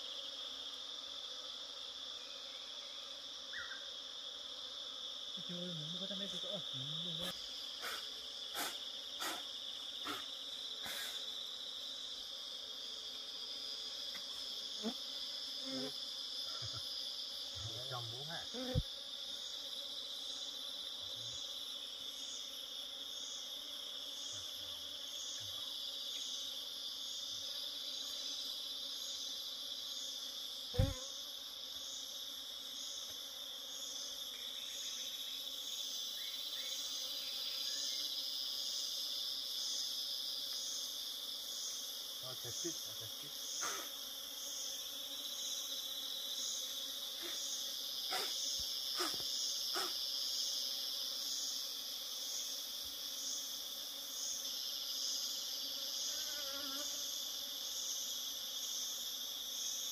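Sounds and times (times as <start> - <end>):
insects droning: 0.0 - 59.9.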